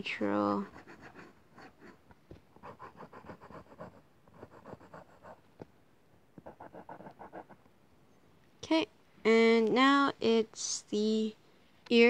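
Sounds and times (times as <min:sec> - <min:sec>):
pencil scratching on paper: 0:00.4 - 0:02.0, 0:02.6 - 0:05.4, 0:06.4 - 0:07.6.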